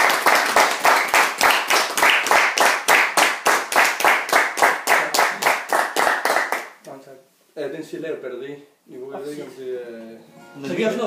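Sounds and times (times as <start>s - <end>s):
hand clapping: 0.0s - 6.9s.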